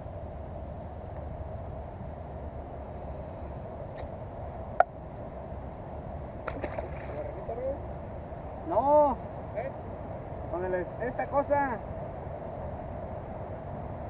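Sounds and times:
low background rumble: 0.0s - 14.0s
fish and tackle handling noise: 6.4s - 7.8s.

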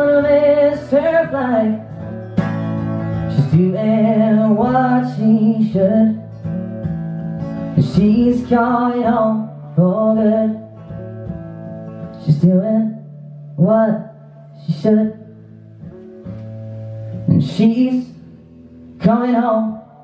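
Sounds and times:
man singing: 0.0s - 2.0s, 3.2s - 6.4s, 7.8s - 10.9s, 12.1s - 15.3s, 17.3s - 18.3s, 19.0s - 20.0s
strummed acoustic guitar: 0.0s - 20.0s.

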